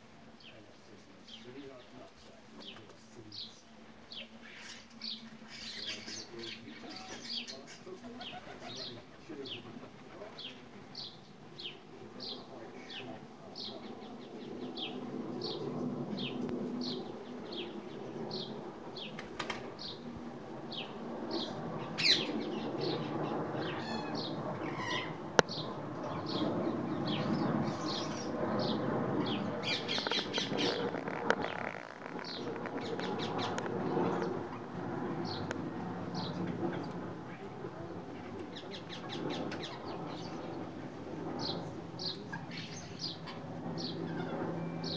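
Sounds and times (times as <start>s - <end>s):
birds wings flapping: 1.8s - 3.3s, 5.8s - 11.0s, 14.6s - 41.4s
bird chirping: 20.7s - 34.4s.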